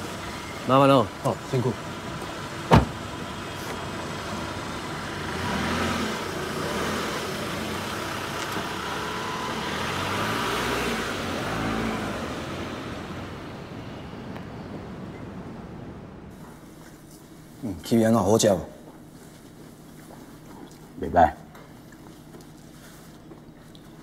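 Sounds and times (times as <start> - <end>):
car pulling away: 0.0 - 16.3
traffic noise: 0.0 - 24.0.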